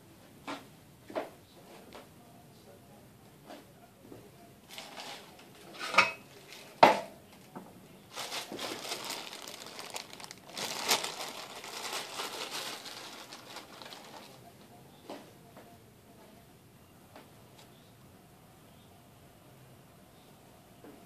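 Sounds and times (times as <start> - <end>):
plastic bag crinkling: 4.7 - 5.4, 8.1 - 14.5.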